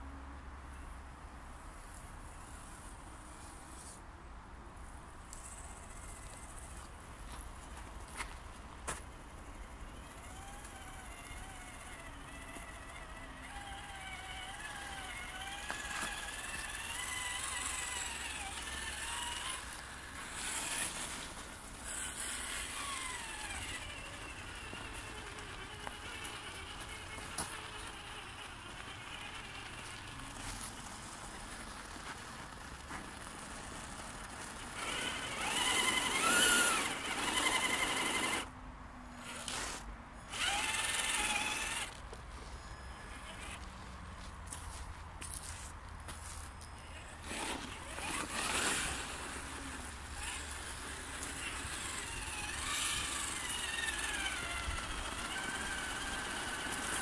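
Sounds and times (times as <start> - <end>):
toy car electric motor whining: 8.9 - 38.5, 39.2 - 43.9, 46.6 - 57.0.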